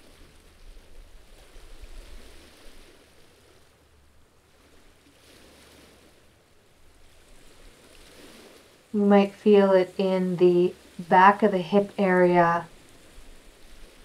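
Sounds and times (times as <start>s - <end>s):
gentle waves on rocky shore: 0.0s - 14.0s
low steady rumble: 8.9s - 12.9s.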